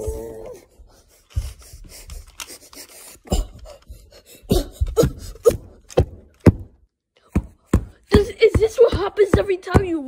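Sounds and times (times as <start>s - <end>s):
plastic figure rubbing and scraping: 0.5s - 6.0s
person grunting: 4.4s - 5.7s
sharp plastic knocks: 5.0s - 10.0s.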